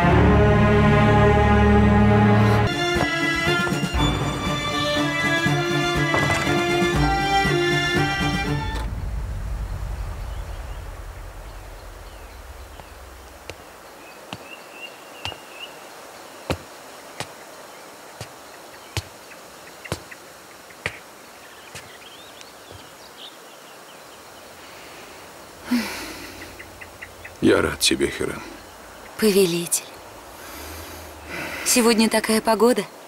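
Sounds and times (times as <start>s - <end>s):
low music: 0.0s - 13.5s
footsteps on stone floor: 2.9s - 3.4s, 12.8s - 14.6s, 15.2s - 15.5s, 16.5s - 17.4s, 18.2s - 19.2s, 20.8s - 22.0s, 22.6s - 22.9s
faint birds chirping: 9.4s - 33.0s.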